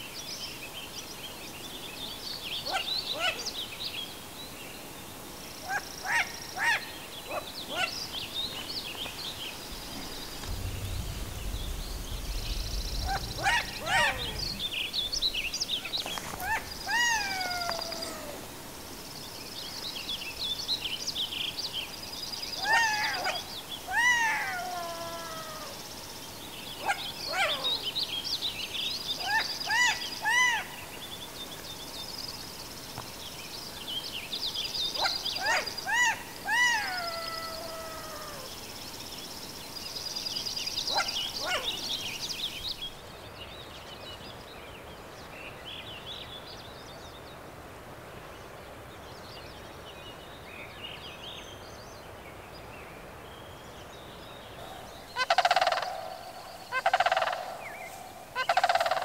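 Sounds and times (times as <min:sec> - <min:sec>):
songbirds trilling: 0:00.6 - 0:46.5, 0:53.4 - 0:59.0
crane giving rattling calls: 0:09.8 - 0:15.3.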